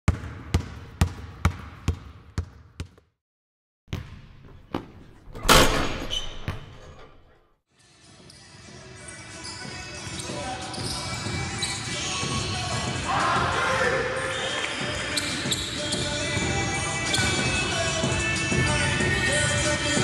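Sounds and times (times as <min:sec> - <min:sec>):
basketball bouncing on wooden floor: 0:00.1 - 0:03.1, 0:03.9 - 0:05.2
sneaker squeaks: 0:05.9 - 0:07.4, 0:08.2 - 0:12.9, 0:14.3 - 0:16.3, 0:16.9 - 0:17.8
background music: 0:07.8 - 0:20.0.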